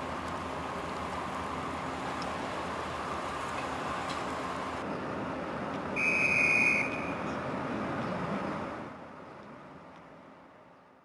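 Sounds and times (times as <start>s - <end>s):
harbour background noise: 0.0s - 11.0s
high-pitched whistle blast: 6.0s - 7.2s.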